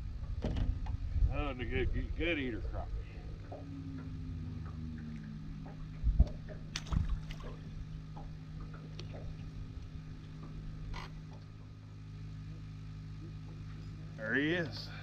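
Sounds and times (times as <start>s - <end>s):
low thuds: 0.0s - 10.6s
low boat hum: 0.0s - 15.0s.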